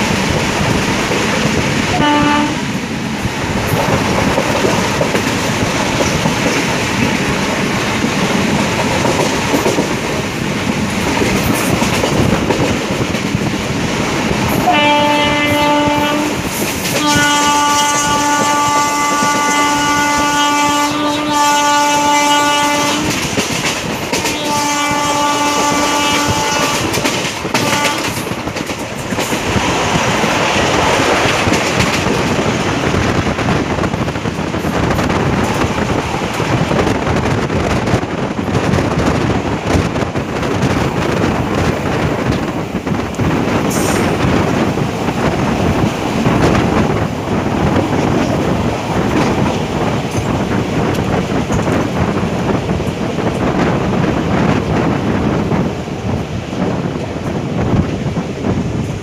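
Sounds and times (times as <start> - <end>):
moving train rushing: 0.0 - 59.0
locomotive horn blasts: 1.9 - 2.7, 14.6 - 23.2, 24.2 - 28.2.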